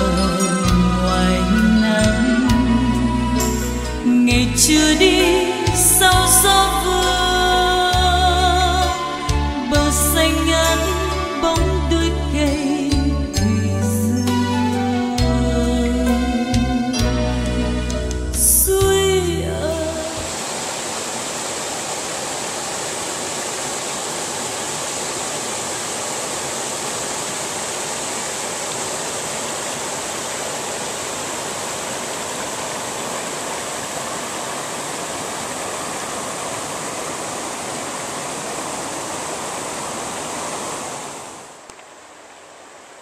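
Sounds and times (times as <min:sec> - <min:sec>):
water rushing over stone dam: 0:19.9 - 0:43.0.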